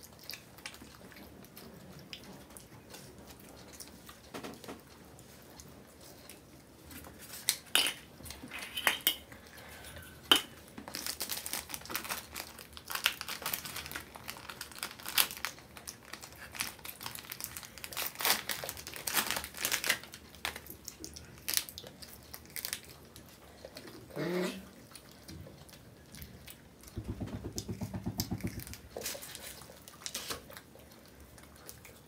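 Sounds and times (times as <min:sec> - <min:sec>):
plastic wrapper crinkling: 0:10.8 - 0:23.2.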